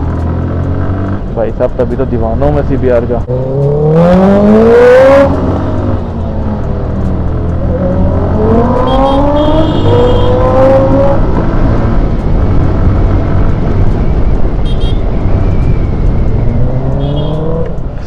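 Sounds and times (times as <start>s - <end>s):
motorcycle engine accelerating: 3.2s - 14.3s.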